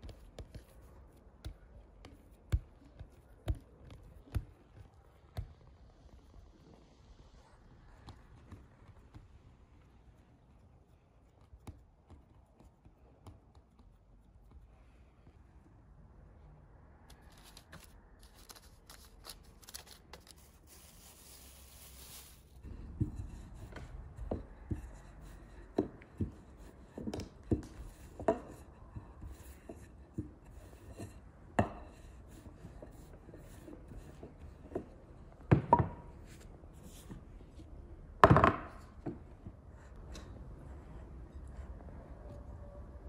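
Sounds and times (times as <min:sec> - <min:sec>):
rolling pin rolling dough: 0:00.0 - 0:09.8, 0:17.1 - 0:37.7
plastic sheet rustling: 0:17.2 - 0:22.6
rolling pin knocking on board: 0:38.2 - 0:39.2.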